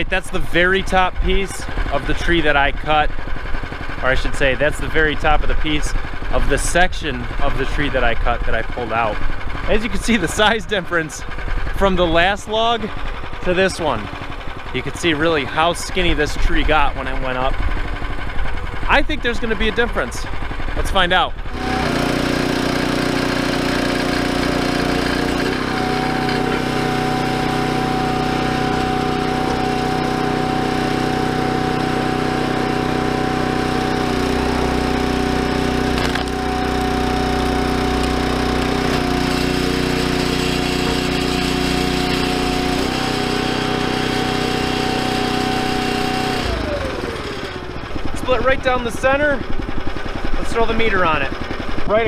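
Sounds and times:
log splitter engine running: 0.0 - 52.0
log cracking: 35.9 - 36.4.

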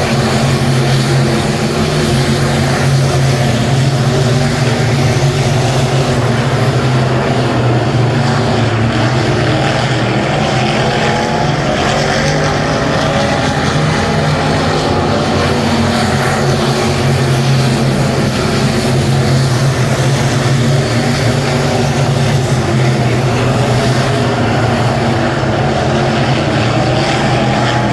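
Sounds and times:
race car engines racing: 0.0 - 27.9.

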